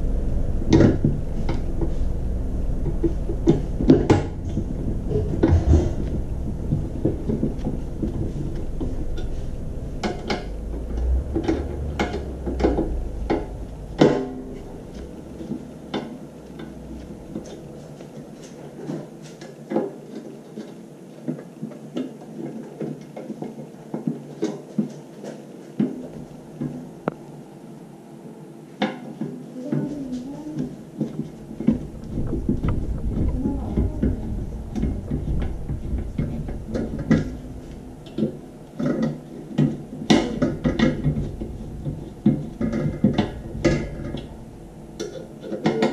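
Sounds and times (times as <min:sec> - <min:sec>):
low rumble: 0:00.0 - 0:18.2, 0:31.4 - 0:38.4, 0:40.4 - 0:45.0.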